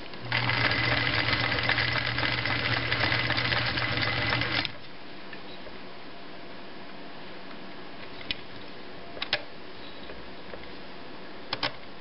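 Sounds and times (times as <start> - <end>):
sewing machine motor hum: 0.2 - 4.8.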